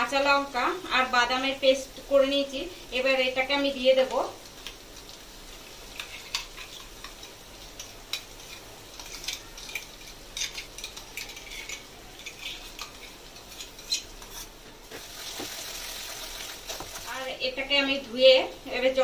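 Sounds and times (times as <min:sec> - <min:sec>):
faint sizzle: 0:00.0 - 0:19.0
metal spatula scraping metal pan: 0:08.1 - 0:14.6.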